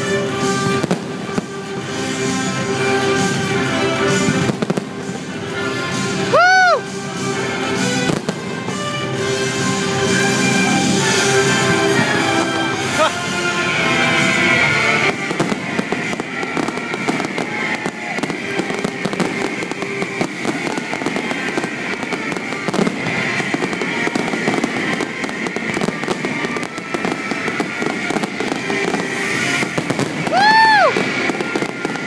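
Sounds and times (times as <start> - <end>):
fireworks bangs and crackling: 0.0 - 32.0.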